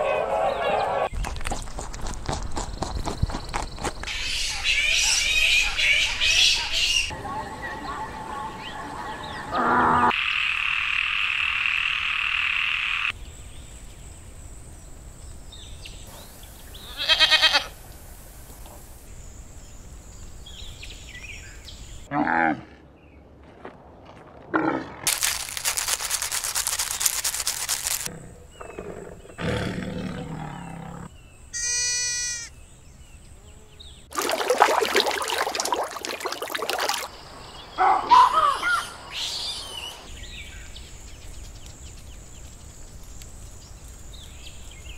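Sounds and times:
squirrel rattling chatter: 25.1 - 28.1.

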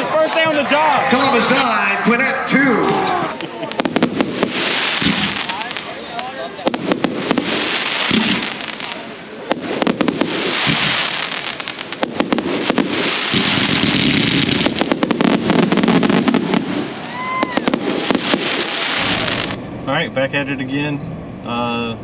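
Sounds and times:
firework whistle: 0.0 - 6.0, 6.9 - 19.7
fireworks crackling: 0.0 - 20.0
fireworks bursting with bangs: 2.7 - 19.8.

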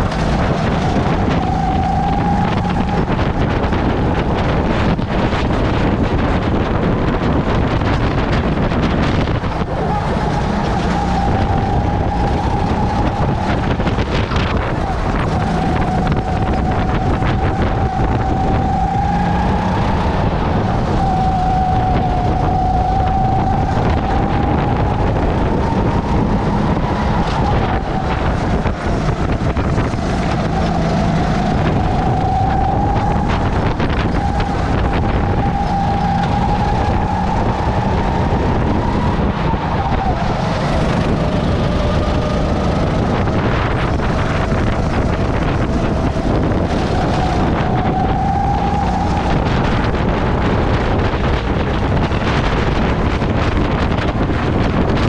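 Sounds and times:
racing kart engine: 0.0 - 55.0
wind buffeting microphone: 0.0 - 55.0.

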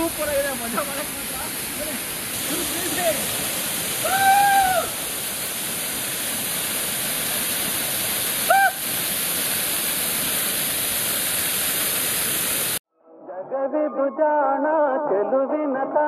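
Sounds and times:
waterfall rushing: 0.0 - 12.8.

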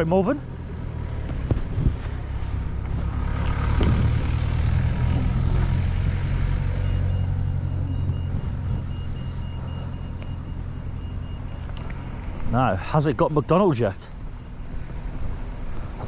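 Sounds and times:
traffic engines rumbling: 0.0 - 16.0.

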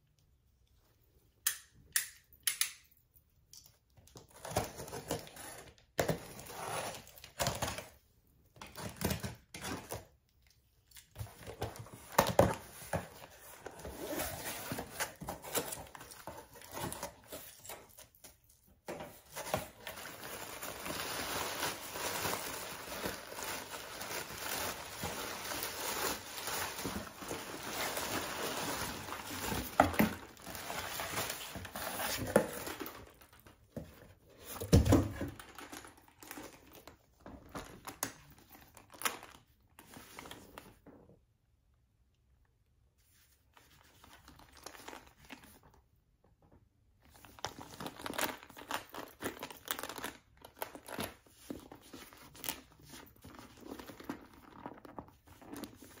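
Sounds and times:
packing paper crinkling: 19.4 - 33.6, 47.3 - 56.0.

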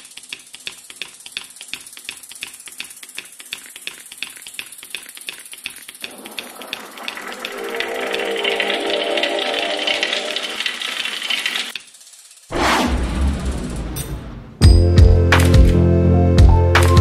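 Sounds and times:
rapid clicking: 0.0 - 12.5
rising hum: 12.5 - 16.4.

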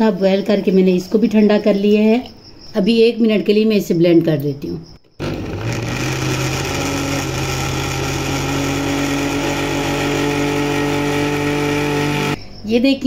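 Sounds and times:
blender motor running: 5.2 - 12.4.

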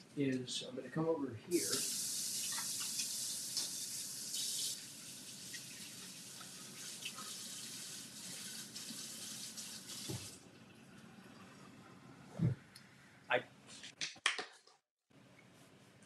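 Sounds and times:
tap running into a sink: 10.0 - 10.4.

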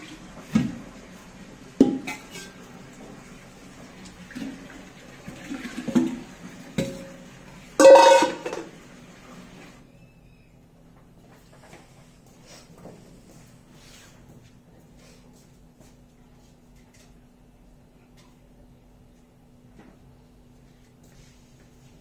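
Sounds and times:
pots knocking and clinking: 1.8 - 2.7, 5.4 - 8.8
steel vessel clattering down: 6.8 - 7.2, 7.8 - 8.8.

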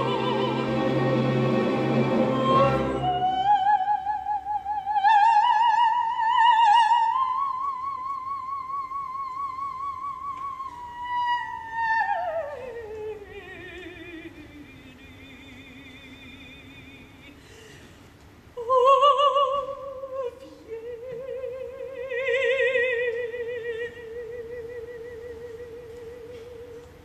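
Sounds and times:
orchestra playing: 0.0 - 3.7
operatic soprano singing: 0.0 - 17.4, 18.6 - 27.0.

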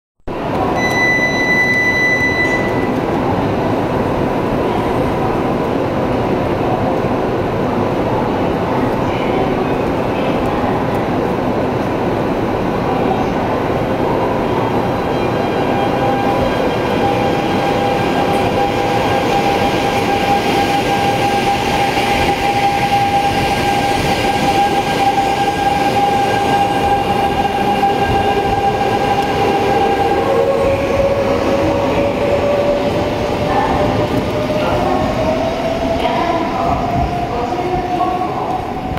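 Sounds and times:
train running noise: 8.1 - 38.9.

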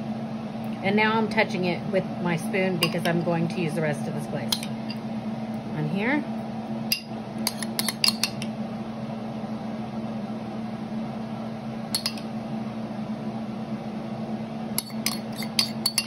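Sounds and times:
steady low hum: 0.0 - 16.0
metal spoon clinking against bowl: 6.9 - 8.4, 11.9 - 12.3, 14.8 - 16.0.

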